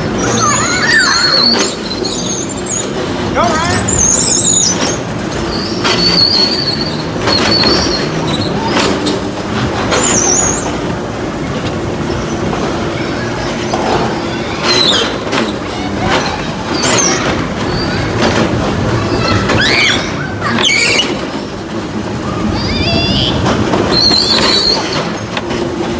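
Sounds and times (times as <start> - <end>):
child squealing: 0.1 - 2.3, 19.1 - 21.1, 22.5 - 23.4.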